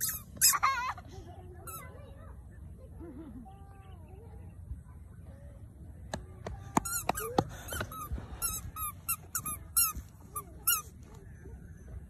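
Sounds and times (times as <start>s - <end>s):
short high squeaks: 0.0s - 0.6s.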